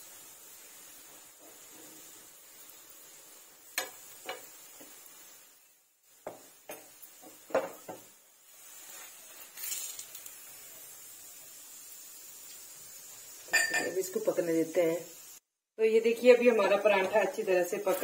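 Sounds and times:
faint steady hiss: 0.0 - 18.0
metal spoon clinking on iron pan: 13.5 - 14.0.

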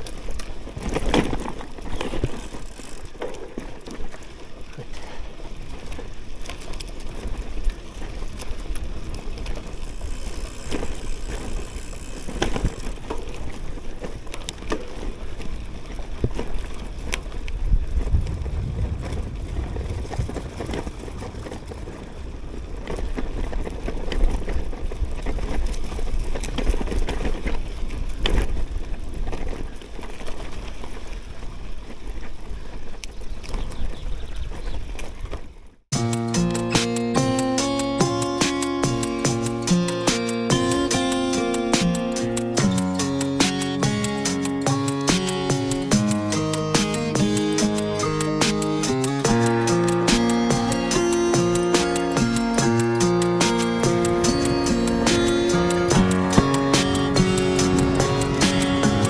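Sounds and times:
bike tyres on dirt track: 0.0 - 59.0
wind rumble on microphone: 5.5 - 35.8.

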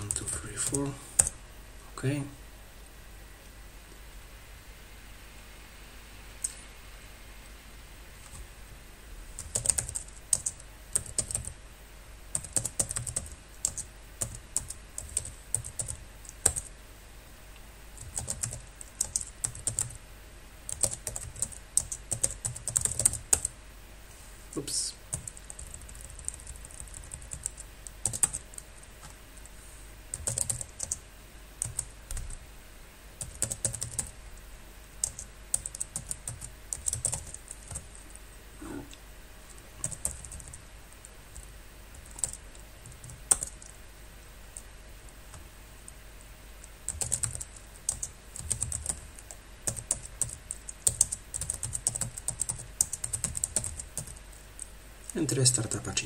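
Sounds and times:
faint low hum: 0.0 - 56.0
typing on computer keyboard: 9.4 - 11.5, 12.3 - 16.7, 18.0 - 20.0, 20.7 - 23.5, 25.1 - 29.2, 30.1 - 31.0, 31.6 - 32.3, 33.2 - 34.1, 35.0 - 38.0, 39.8 - 40.6, 41.4 - 43.7, 46.9 - 54.7.

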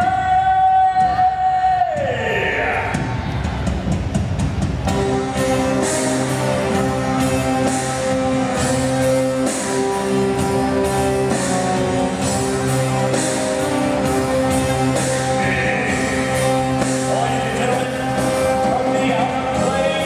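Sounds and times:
rock style band music: 3.0 - 20.0
guitar chords: 4.9 - 20.0.

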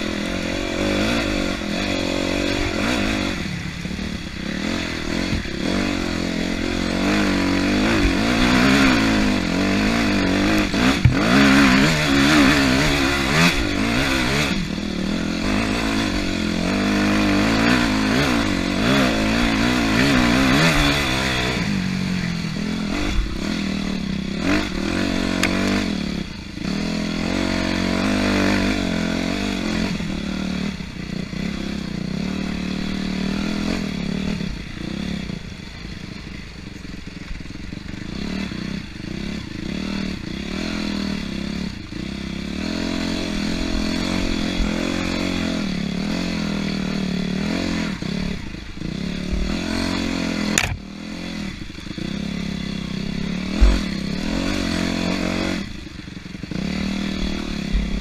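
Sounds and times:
dirt bike engine revving: 0.0 - 58.0
sharp knock: 10.9 - 11.4, 50.6 - 50.8
low thump: 10.9 - 11.6, 53.6 - 53.9.

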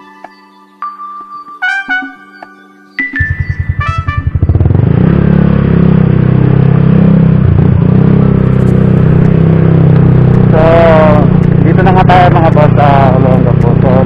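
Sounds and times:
motorcycle engine running: 3.0 - 14.0.

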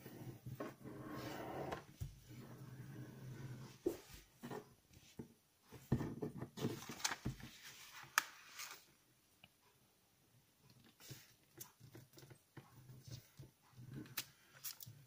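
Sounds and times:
paper rustling and crackling: 6.6 - 8.9.

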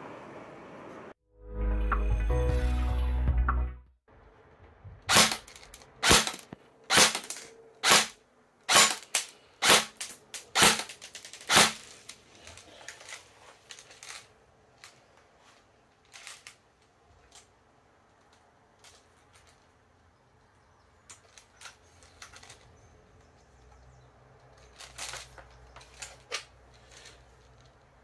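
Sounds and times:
airsoft gun shots: 5.1 - 10.9, 11.5 - 11.8.

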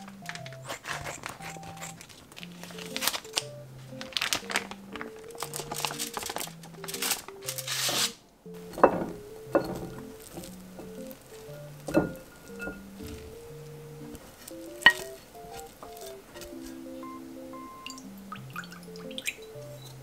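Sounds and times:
scissors cutting foil pouch: 0.0 - 8.2, 14.2 - 16.8
foil crinkling: 0.0 - 17.0
rice thudding into glass bowl: 8.7 - 11.2.

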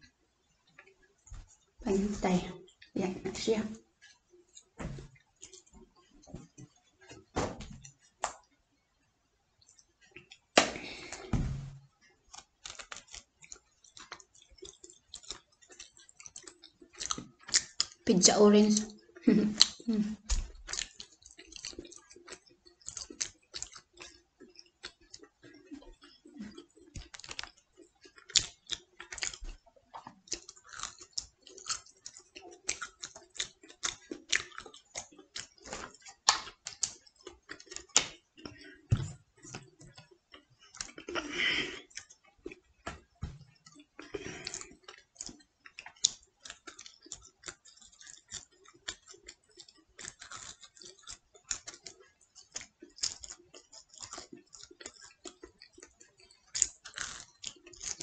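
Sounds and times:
chewing crisp crust: 3.8 - 8.6, 9.6 - 11.3, 12.0 - 18.1, 18.7 - 58.0
wet mouth clicks: 12.3 - 18.1, 18.8 - 42.9, 43.5 - 58.0.

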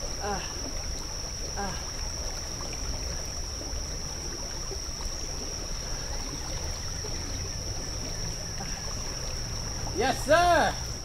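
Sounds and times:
creek water trickling: 0.0 - 11.0.

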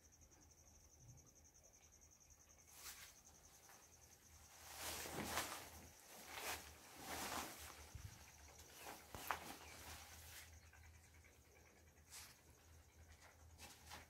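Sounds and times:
cricket chirping: 0.0 - 14.0
rustling scuffs: 4.6 - 8.1.

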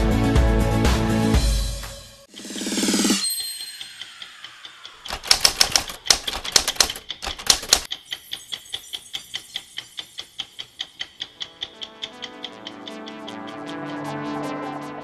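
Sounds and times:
steady ticking: 2.3 - 14.7
typewriter keystrokes clattering: 5.0 - 8.5.

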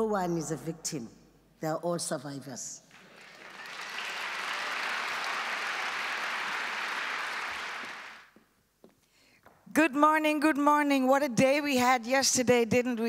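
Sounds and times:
audience applauding: 2.9 - 8.3.

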